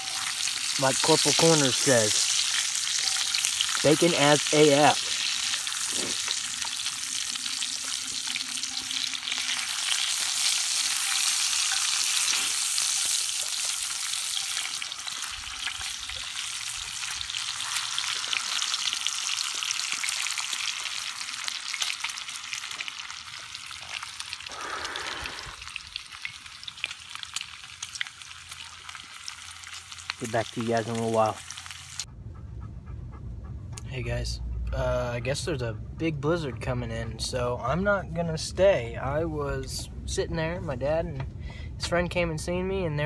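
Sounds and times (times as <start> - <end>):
bacon sizzling in a skillet: 0.0 - 32.1.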